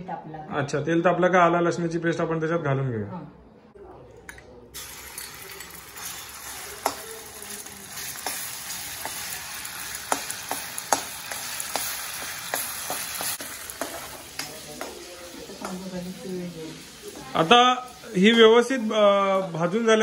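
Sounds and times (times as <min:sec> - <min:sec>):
paste sizzling in hot oil: 0:04.8 - 0:20.0.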